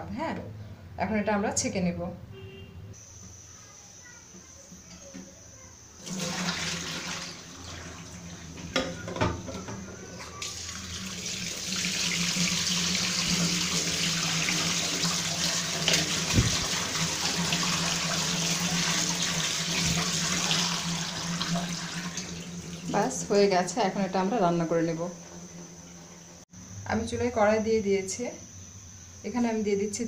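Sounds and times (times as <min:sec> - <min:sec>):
kitchen tap running: 0:06.0 - 0:23.7.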